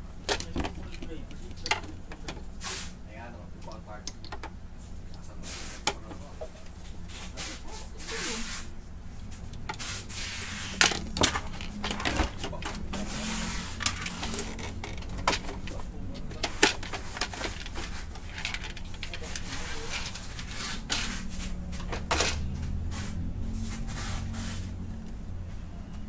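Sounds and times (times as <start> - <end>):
steady low hum: 0.0 - 26.0
plastic printer housing clicks and scraping: 0.3 - 2.4, 10.8 - 13.1, 13.7 - 21.0.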